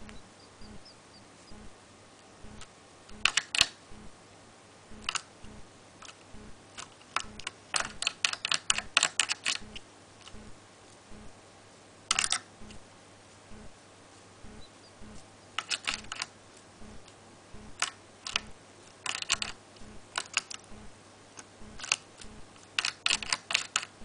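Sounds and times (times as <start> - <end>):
beak pecking on plastic: 0.0 - 1.7, 2.4 - 4.1, 4.9 - 10.6, 14.4 - 24.0.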